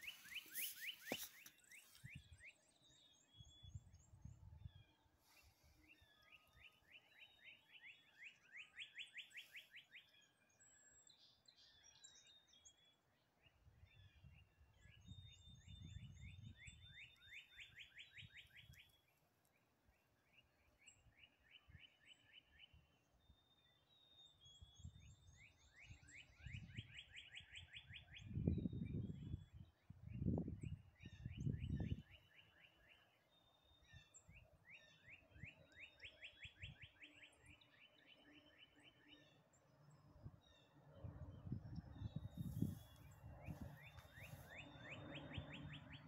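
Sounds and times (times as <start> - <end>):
songbird trilling: 0.0 - 2.2
faint high bird trills: 0.0 - 2.4, 42.3 - 46.0
wind buffeting microphone: 15.0 - 16.9, 28.2 - 32.0, 41.0 - 44.4.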